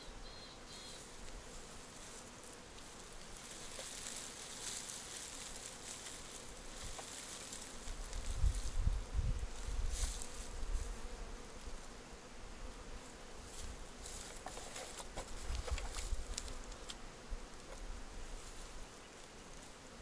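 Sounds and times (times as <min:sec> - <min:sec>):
honeybees buzzing: 0:00.0 - 0:20.0
rustling on microphone: 0:01.0 - 0:11.8, 0:13.5 - 0:17.0.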